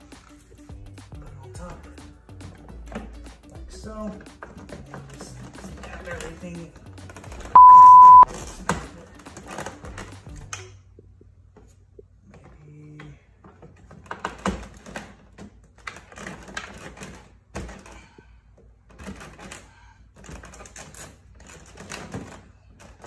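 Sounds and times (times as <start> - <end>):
plastic clicking and rattling: 12.3 - 18.0, 18.6 - 23.0.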